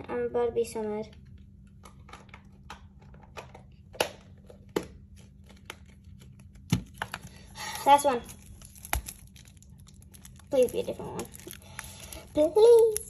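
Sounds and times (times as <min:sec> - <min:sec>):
foil packaging crinkling: 0:05.0 - 0:13.0.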